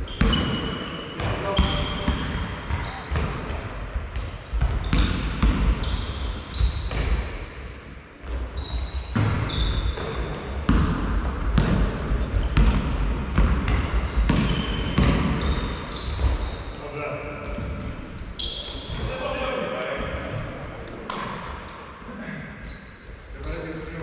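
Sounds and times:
shoes squeaking on court: 0:00.0 - 0:03.6, 0:04.2 - 0:07.1, 0:08.2 - 0:10.7, 0:12.2 - 0:12.8, 0:13.4 - 0:16.8, 0:17.4 - 0:19.2, 0:22.6 - 0:24.0
basketball bouncing on floor: 0:01.2 - 0:05.8, 0:09.2 - 0:16.4.

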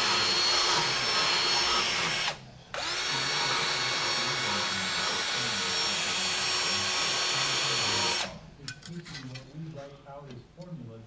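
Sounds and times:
angle grinder cutting metal: 0:00.0 - 0:08.3.

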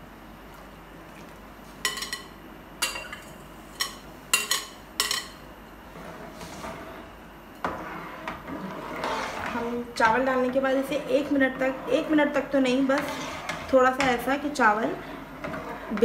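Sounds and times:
rice scraped into water: 0:07.8 - 0:09.8, 0:12.9 - 0:13.7.

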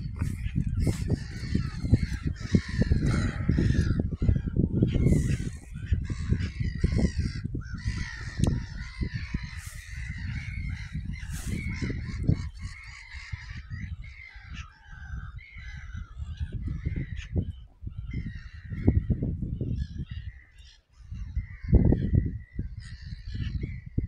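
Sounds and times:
gulls calling: 0:00.0 - 0:24.0
wind buffeting microphone: 0:00.0 - 0:24.0.

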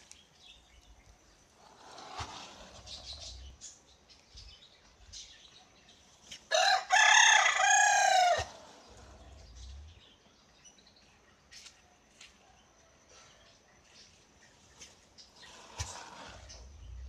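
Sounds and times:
rooster crowing: 0:06.5 - 0:08.8.

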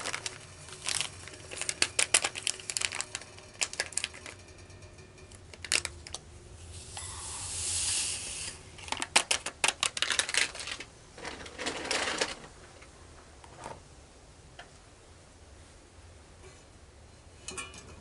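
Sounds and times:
handling rustle: 0:00.0 - 0:04.1.

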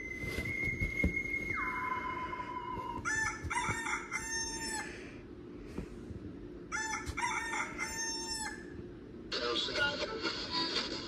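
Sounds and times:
rooster crowing through a speaker: 0:01.7 - 0:04.9, 0:06.7 - 0:08.7.

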